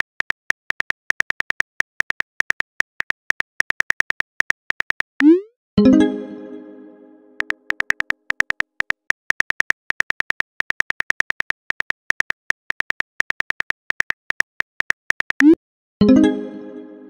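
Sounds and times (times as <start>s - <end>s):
phone keyboard typing clicks: 7.4s - 15.6s.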